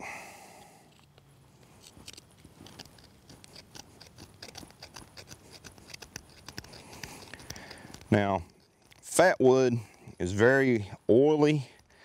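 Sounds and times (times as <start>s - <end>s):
knife scraping wooden stick: 1.6s - 10.2s.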